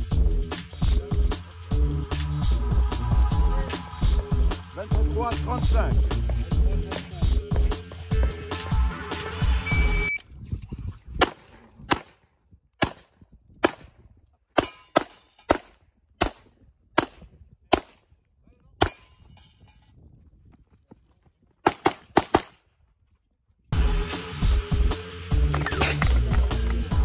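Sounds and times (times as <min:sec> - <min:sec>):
pistol shots: 0:11.2 - 0:12.2, 0:12.8 - 0:13.9, 0:21.6 - 0:22.6.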